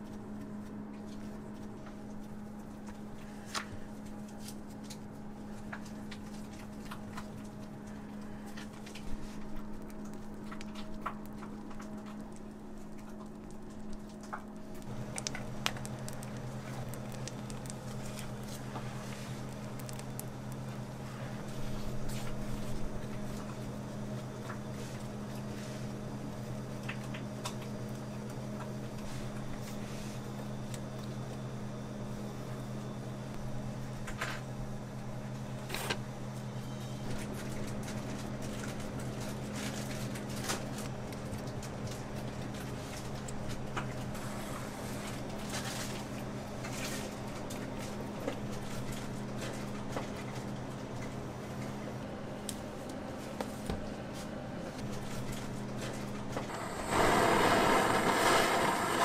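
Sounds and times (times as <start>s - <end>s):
lower motor hum: 50.9s - 59.0s
electric motor hum: 56.5s - 59.0s.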